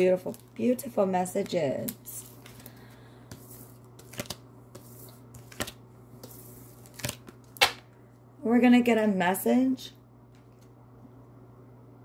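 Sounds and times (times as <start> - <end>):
cards clicking and sliding: 2.2 - 7.8.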